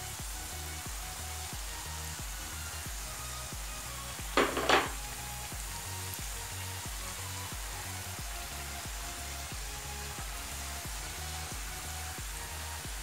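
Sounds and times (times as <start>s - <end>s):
dough sizzling in hot oil: 0.0s - 13.0s.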